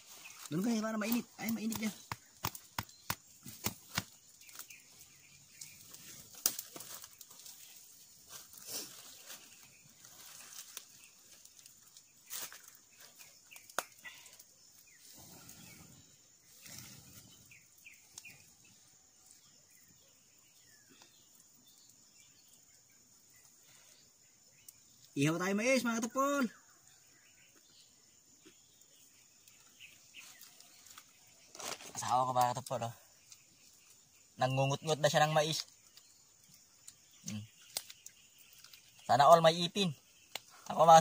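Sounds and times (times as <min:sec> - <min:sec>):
wood fire crackling: 0:00.0 - 0:27.6, 0:28.5 - 0:41.0
faint outdoor ambience: 0:00.0 - 0:41.0
sharp pops from fire: 0:01.0 - 0:04.9, 0:05.5 - 0:07.7, 0:10.2 - 0:15.8, 0:35.5 - 0:39.0, 0:40.2 - 0:40.8.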